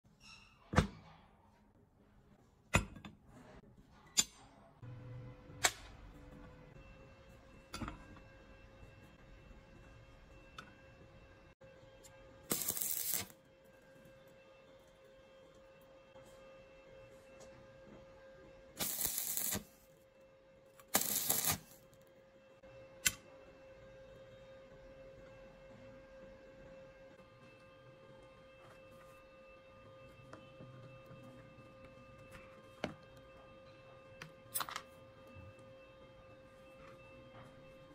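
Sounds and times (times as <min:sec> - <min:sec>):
welding arc crackling: 0:12.5 - 0:13.4, 0:18.8 - 0:19.8, 0:20.9 - 0:21.8.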